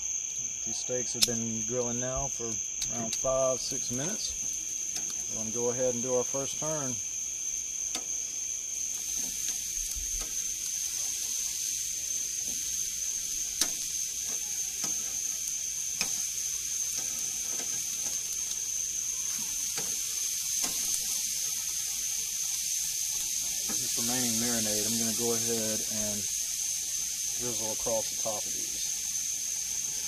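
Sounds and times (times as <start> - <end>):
steaks sizzling on a grill: 0.0 - 30.0.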